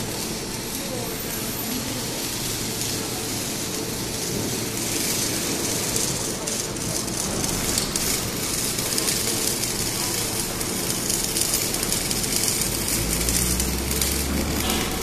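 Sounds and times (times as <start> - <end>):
welding arc crackling and hissing: 0.0 - 15.0.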